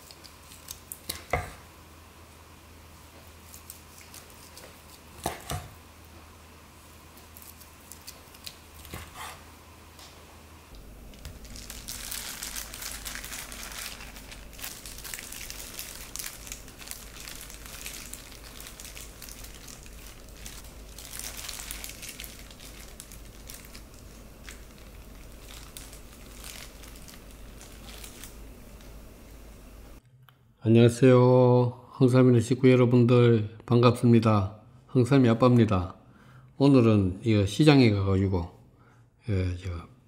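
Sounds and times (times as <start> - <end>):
plastic glove crinkling: 0.0 - 1.4, 3.0 - 5.5, 7.1 - 9.5, 10.8 - 30.0
steady low hum: 0.0 - 32.3.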